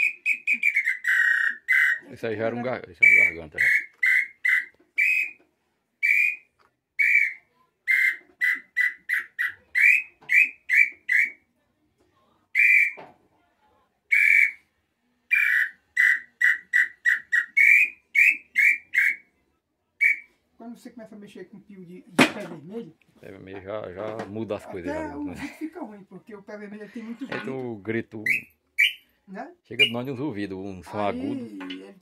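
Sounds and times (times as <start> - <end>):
wooden bird call whistling: 0.0 - 2.1, 3.0 - 11.4, 12.5 - 13.0, 14.1 - 14.7, 15.3 - 19.3, 20.0 - 20.3, 28.2 - 29.1, 29.8 - 30.1.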